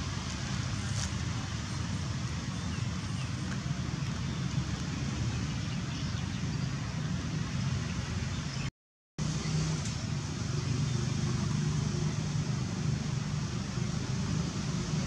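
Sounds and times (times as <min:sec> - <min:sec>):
low rumble with hiss: 0:00.0 - 0:15.0.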